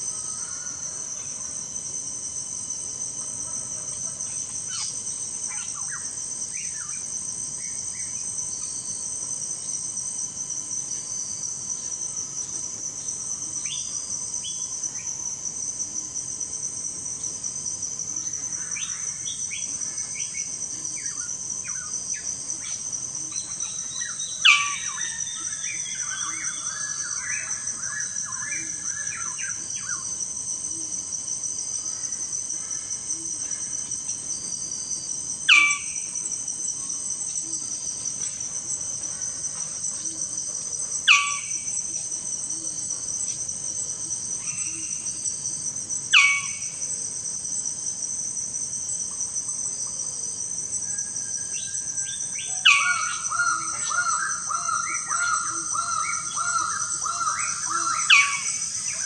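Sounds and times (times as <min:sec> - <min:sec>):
insects chorus: 0:00.0 - 0:59.0
bird calls: 0:52.4 - 0:59.0.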